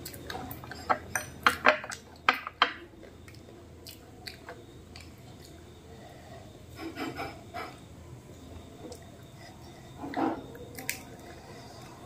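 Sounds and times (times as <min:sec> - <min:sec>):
wet chewing sounds: 0:03.0 - 0:05.7, 0:08.8 - 0:12.0.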